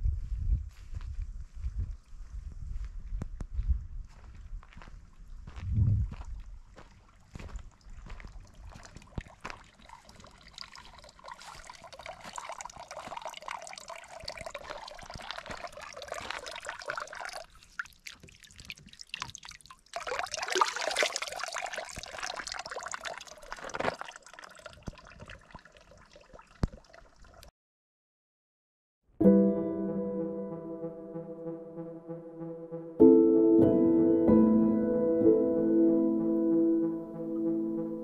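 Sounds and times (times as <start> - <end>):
water pouring and trickling: 6.2 - 27.5.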